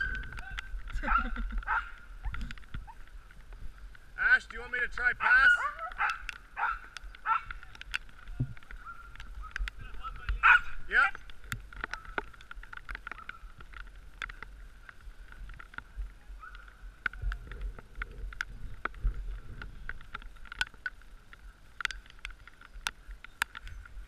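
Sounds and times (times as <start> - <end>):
wind rumble on microphone: 0.0 - 24.0
clicks and knocks from sled: 5.9 - 24.0.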